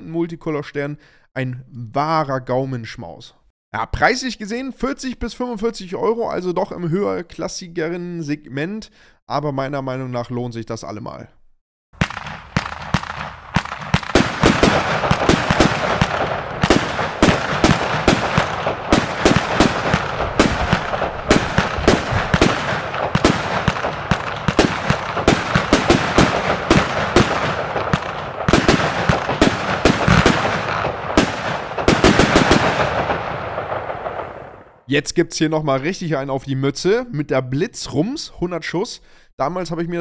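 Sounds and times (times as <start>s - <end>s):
firework bangs: 12.0s - 34.8s.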